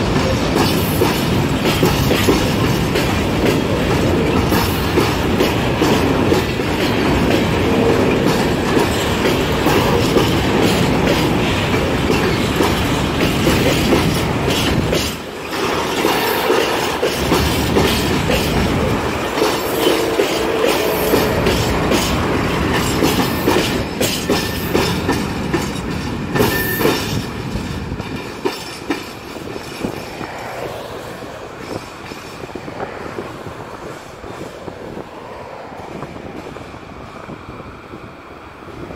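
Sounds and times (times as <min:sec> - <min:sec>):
freight train wheels clicking: 0:00.0 - 0:38.7
train wheel squeal: 0:13.5 - 0:30.3.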